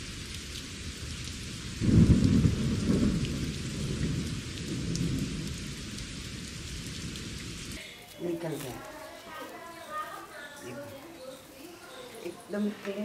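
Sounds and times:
steady rain: 0.0s - 13.0s
thunder rumble: 0.9s - 7.8s.

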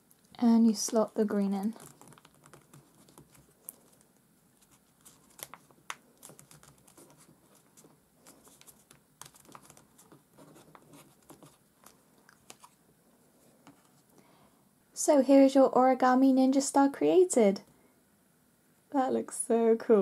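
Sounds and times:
paper rustling and crinkling: 0.7s - 12.8s.

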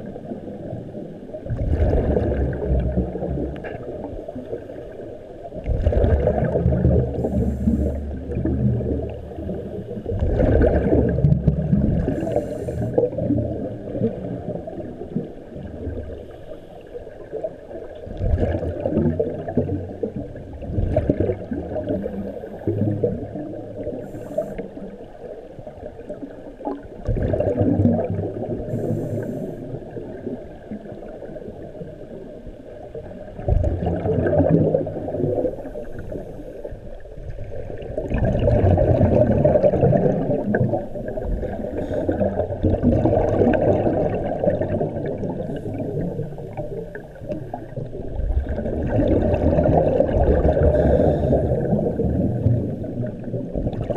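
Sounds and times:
muffled underwater gurgling: 0.0s - 53.9s.

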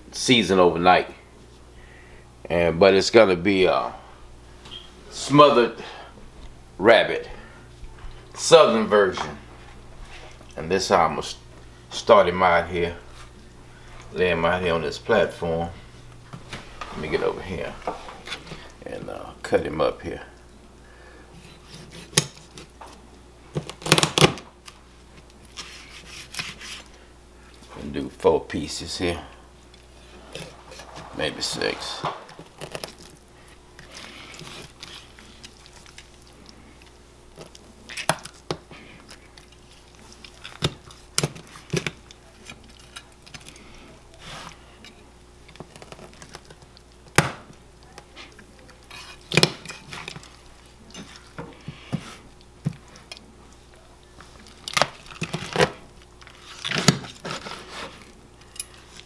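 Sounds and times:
faint steady hum: 0.0s - 59.0s
cutting and handling meat: 21.4s - 23.0s, 23.6s - 27.0s, 29.7s - 59.0s.

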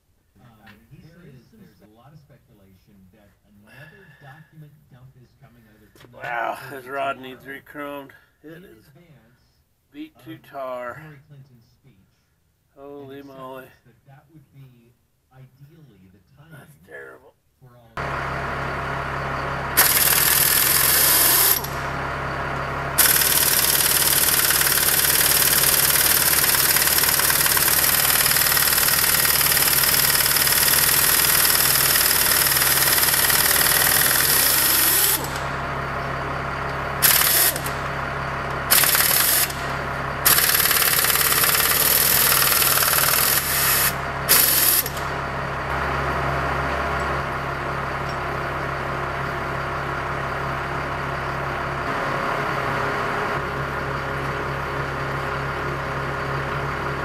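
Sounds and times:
engine idling hum: 17.8s - 57.0s
pneumatic impact wrench hammering: 19.8s - 21.9s, 23.0s - 35.6s, 36.7s - 45.2s.

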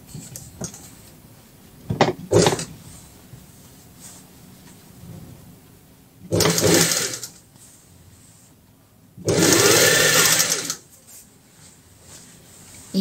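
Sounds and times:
sewing machine stitching: 6.3s - 7.4s, 9.2s - 10.8s.

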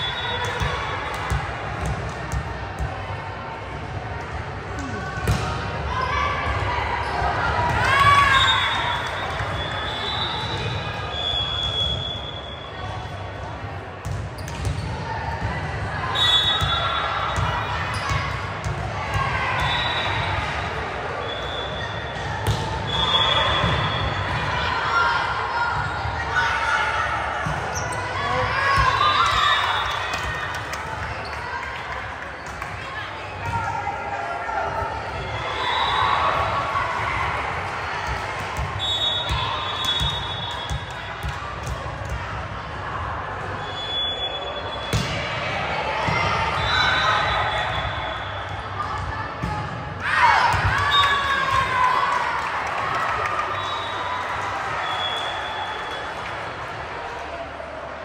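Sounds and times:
crowd chatter: 0.0s - 58.0s
murmur of voices: 0.0s - 58.0s
sneakers squeaking on gym floor: 14.0s - 15.0s.

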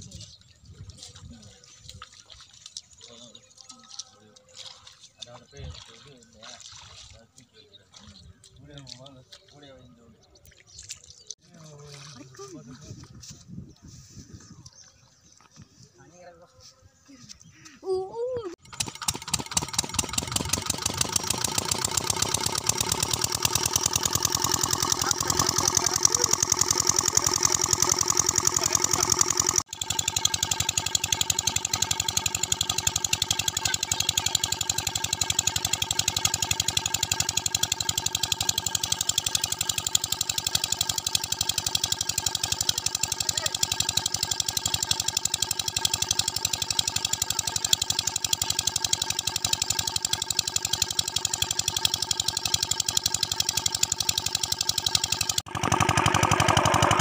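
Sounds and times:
diesel pump engine thudding: 18.6s - 57.0s.

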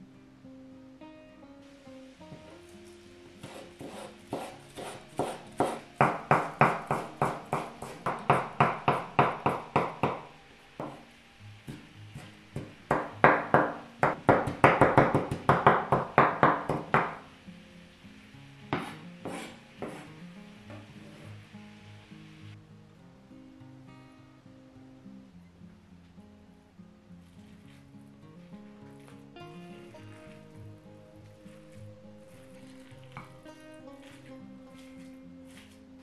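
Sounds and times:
soft acoustic guitar music: 0.0s - 36.0s
knife chopping on wooden board: 3.4s - 11.0s, 11.7s - 17.2s, 18.8s - 20.1s.

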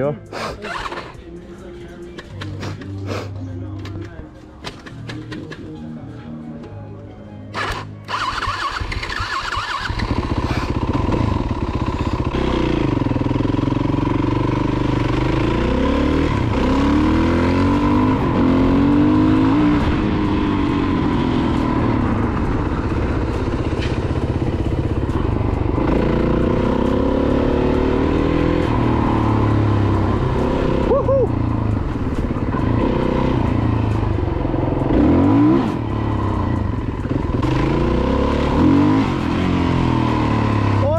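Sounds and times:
dirt bike engine revving: 7.6s - 22.2s, 22.8s - 31.0s, 37.0s - 40.9s.

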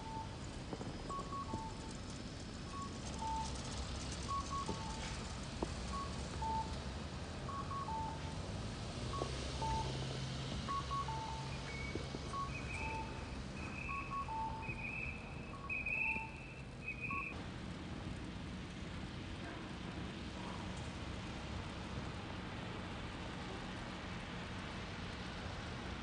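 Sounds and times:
low vehicle engine hum: 0.0s - 26.0s
high-pitched beeping: 10.7s - 17.3s
two-note crossing signal call: 10.7s - 17.3s.

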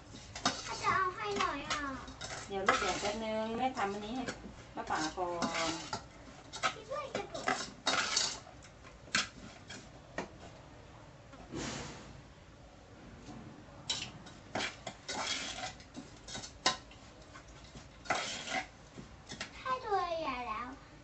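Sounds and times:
metal spoon scraping saucepan: 0.1s - 9.9s, 13.9s - 18.7s.

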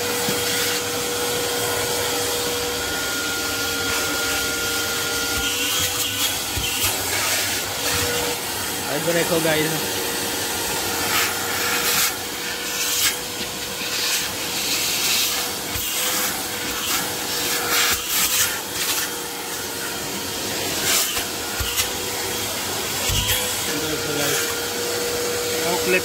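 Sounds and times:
vacuum cleaner running: 0.0s - 26.0s
vacuum nozzle rasping on mat: 0.0s - 26.0s.

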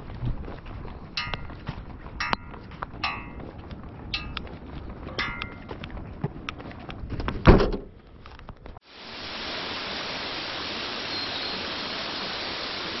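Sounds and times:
footsteps on pavement: 0.0s - 7.4s
steady hiss: 8.8s - 13.0s.

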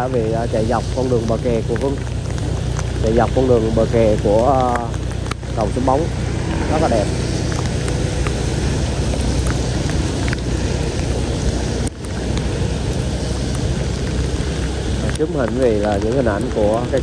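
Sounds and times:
wind on microphone: 0.0s - 15.2s
low hum: 0.0s - 17.0s
rain: 0.0s - 17.0s
traffic on wet road: 0.0s - 17.0s.

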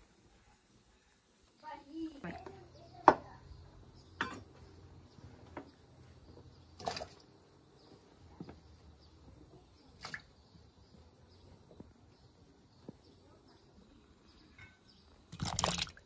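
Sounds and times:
potato chunks plopping into water: 15.3s - 16.0s.

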